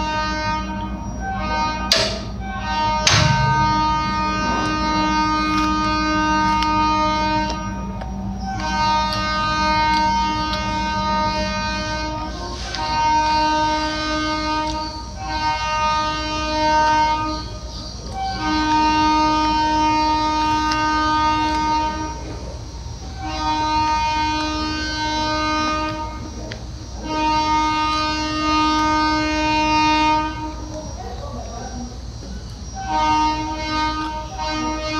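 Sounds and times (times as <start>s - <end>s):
train horn blasts: 0.0s - 31.0s, 32.7s - 34.9s
low rumble: 2.4s - 6.7s.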